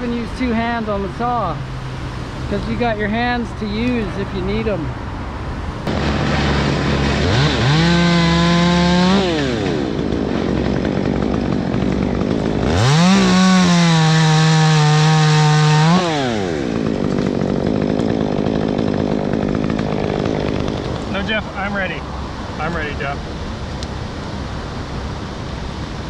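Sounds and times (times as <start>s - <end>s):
chainsaw idling and revving: 5.8s - 22.0s.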